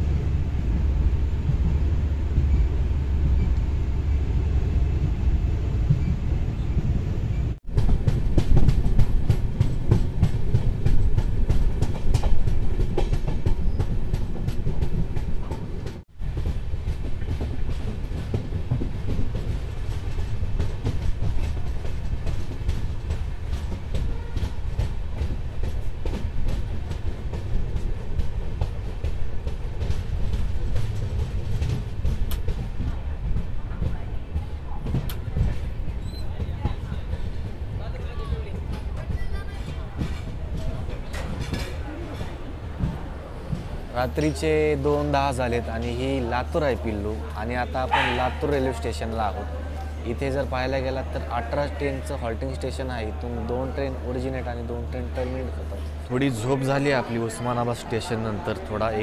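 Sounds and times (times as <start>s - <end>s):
train coaches rumbling: 0.0s - 59.0s
wheels clattering over rail joints: 5.9s - 50.5s.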